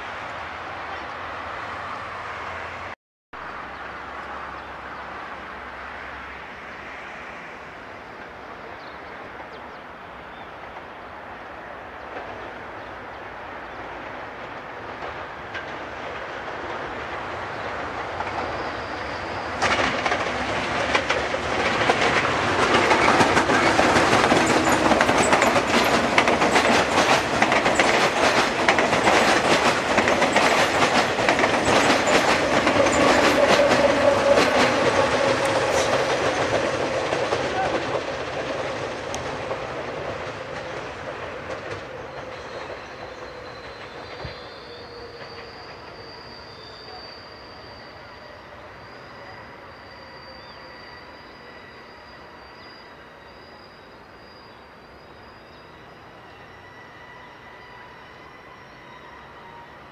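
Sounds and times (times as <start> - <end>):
train passing: 0.0 - 59.9
train wheels clacking on rails: 13.8 - 48.3.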